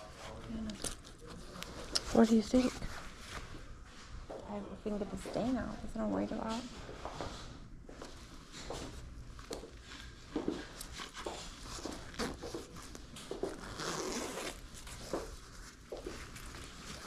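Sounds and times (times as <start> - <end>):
fabric rustling: 6.4 - 17.0
zipper being pulled: 10.9 - 15.2.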